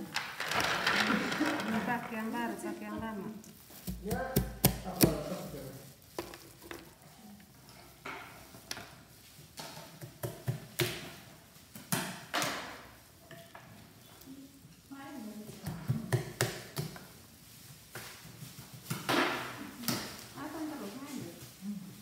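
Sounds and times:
scraping rustles: 0.0 - 10.0, 17.1 - 22.0.

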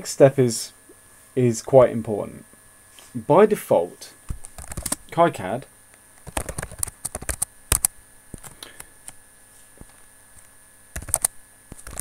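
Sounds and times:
faint steady hum: 0.0 - 12.0
keyboard typing: 6.2 - 7.9, 11.0 - 12.0.

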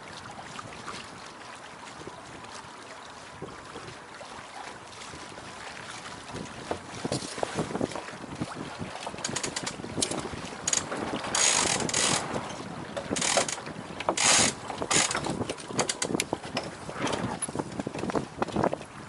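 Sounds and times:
wind gusts: 5.1 - 19.0
deck hardware clicking and rattling: 9.1 - 18.9.

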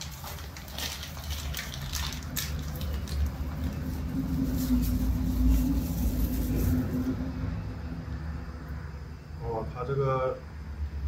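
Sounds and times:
plastic bag crinkling: 0.0 - 7.2
low steady rumble: 2.6 - 9.4.

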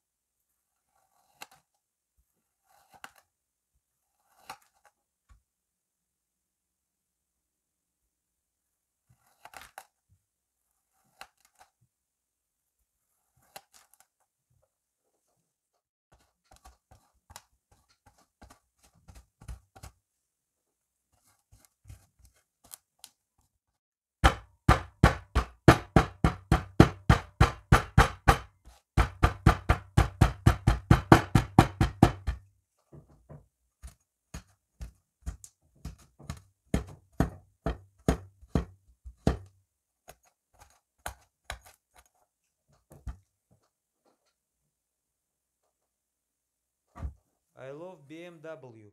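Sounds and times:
hatchet chopping onto tabletop: 24.2 - 32.4, 35.4 - 39.5.

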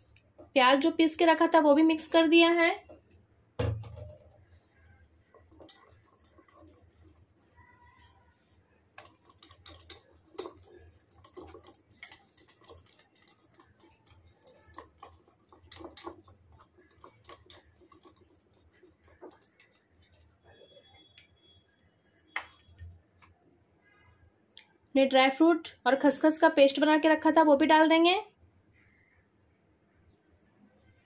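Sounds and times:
whisk scraping glass bowl: 4.5 - 21.7.

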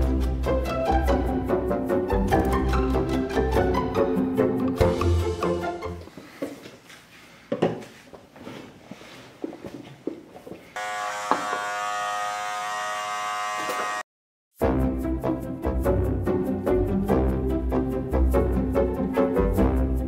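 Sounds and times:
electric hair clippers buzzing: 10.8 - 14.1.

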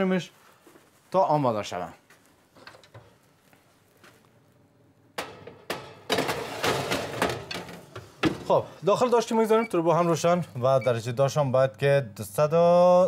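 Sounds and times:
metal tray clattering: 5.2 - 8.6.

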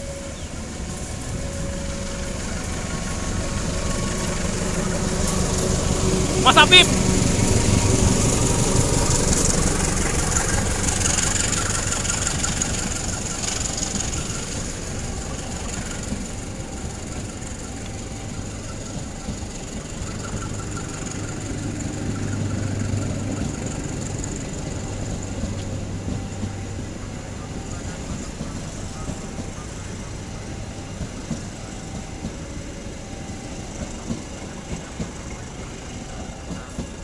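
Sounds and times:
diesel locomotive engine running: 0.0 - 37.0
train coaches rolling on rails: 0.0 - 37.0.

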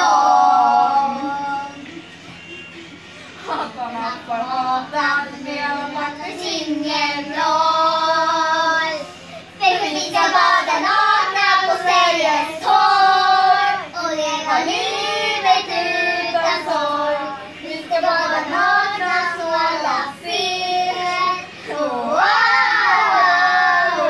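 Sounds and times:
girls singing together: 0.0 - 1.8, 3.4 - 24.0.

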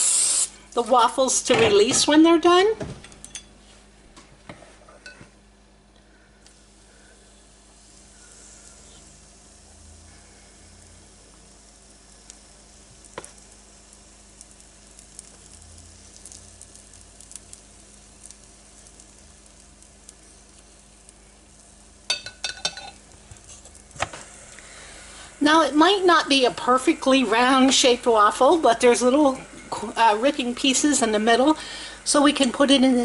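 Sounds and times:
batter sizzling on waffle iron: 0.0 - 1.4, 6.1 - 33.0
spoon clinking glass bowl: 22.1 - 23.0
spoon and spatula scraping: 22.1 - 23.8.

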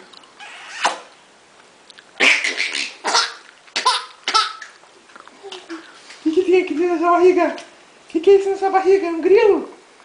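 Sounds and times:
baby laughing: 2.2 - 4.7.

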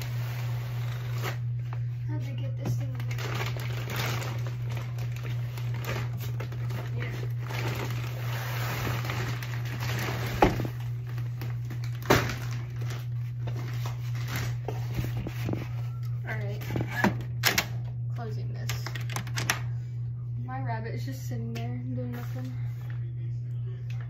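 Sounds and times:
steady low hum: 0.0 - 24.0
plastic bag crinkling: 2.8 - 15.8.

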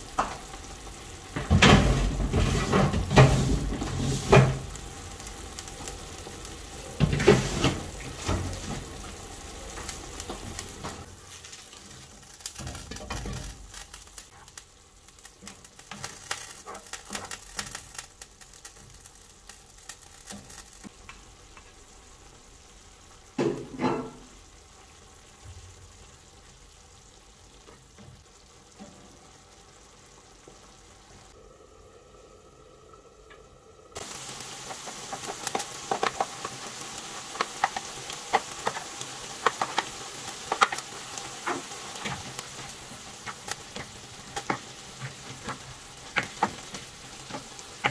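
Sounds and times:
meat sizzling in a skillet: 0.0 - 31.4, 33.9 - 47.9
utensil scraping a pan: 7.0 - 8.9.

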